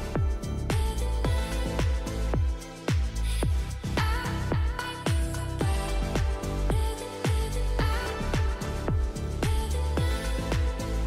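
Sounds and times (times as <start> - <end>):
electronic beat: 0.0 - 11.0.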